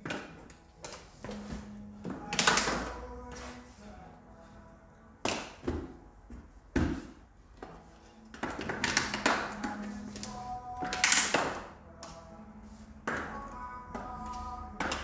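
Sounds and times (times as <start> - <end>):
plastic clips snapping: 8.5 - 12.2.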